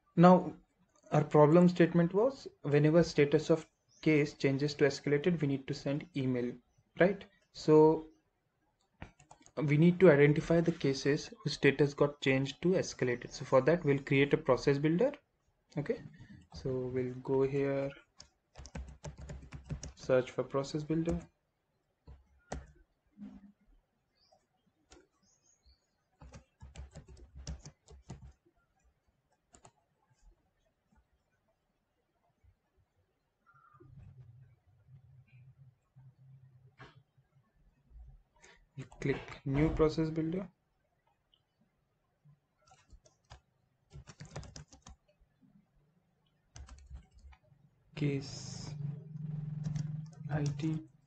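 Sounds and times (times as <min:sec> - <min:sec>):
typing on computer keyboard: 0:09.0 - 0:09.6, 0:17.8 - 0:20.1, 0:21.0 - 0:21.3, 0:22.1 - 0:22.8, 0:26.2 - 0:28.4, 0:29.3 - 0:29.9, 0:42.6 - 0:45.2, 0:46.5 - 0:47.5, 0:49.6 - 0:50.8.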